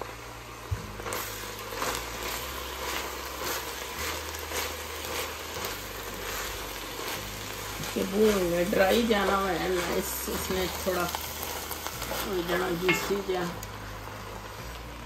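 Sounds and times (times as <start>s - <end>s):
low sizzle of sauce: 0.0s - 15.0s
wooden spoon scraping mince: 1.0s - 15.0s.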